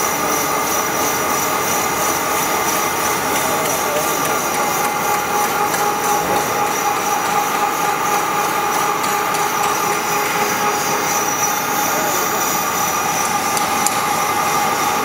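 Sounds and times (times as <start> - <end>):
lathe spindle mechanical drone: 0.0 - 15.0.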